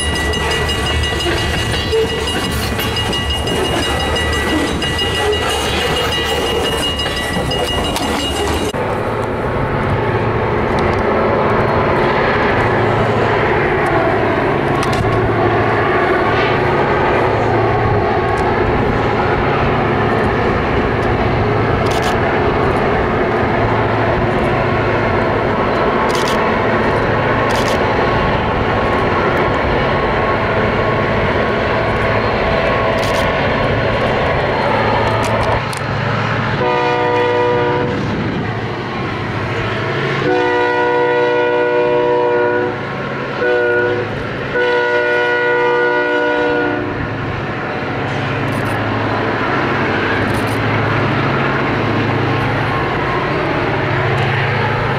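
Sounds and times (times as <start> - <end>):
train wheels rumbling on rail: 0.0 - 54.9
locomotive horn blasts: 36.6 - 38.0, 40.2 - 47.1.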